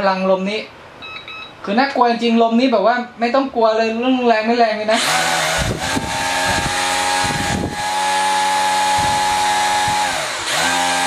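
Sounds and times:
drone motors buzzing whine: 5.0s - 11.0s
propeller air rush: 5.0s - 11.0s.

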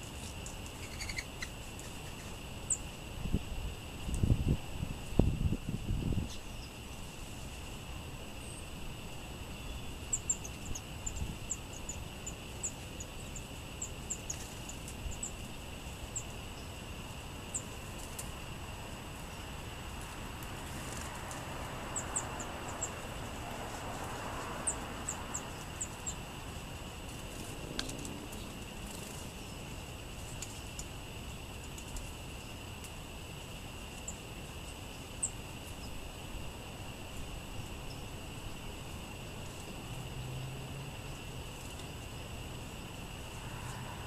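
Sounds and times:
songbirds high thin calls: 0.0s - 3.0s, 8.3s - 32.8s, 33.8s - 36.3s
steady background hiss: 0.0s - 44.0s.

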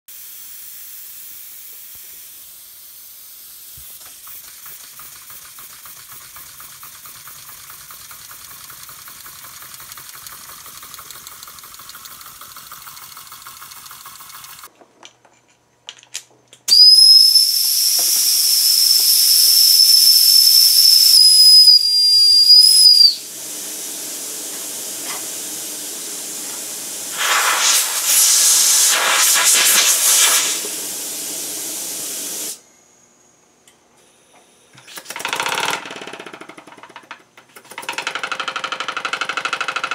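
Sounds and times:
model engine hissing air: 0.1s - 14.7s, 16.7s - 32.6s
faint fast cylinder pulsing: 4.0s - 14.7s
high toy steam whistle: 16.7s - 23.4s.

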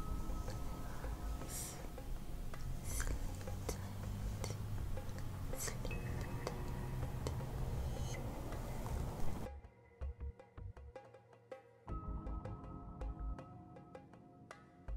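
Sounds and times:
soft background music: 0.0s - 14.9s
wet lip smacks: 2.6s - 3.8s.

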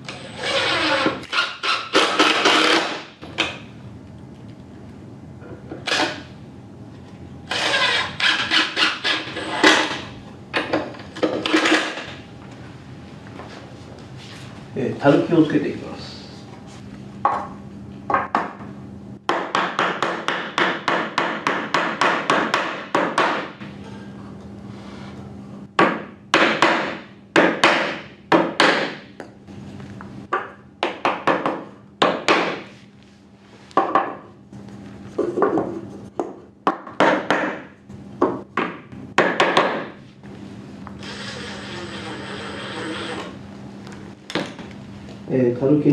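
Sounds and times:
power screwdriver driving screw: 0.1s - 2.9s, 7.5s - 9.8s, 41.0s - 43.3s.

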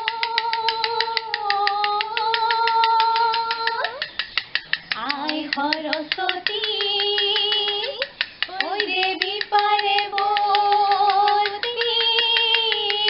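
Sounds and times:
women singing: 0.0s - 4.2s, 4.9s - 13.0s
bamboo clapper clicking: 0.0s - 13.0s.

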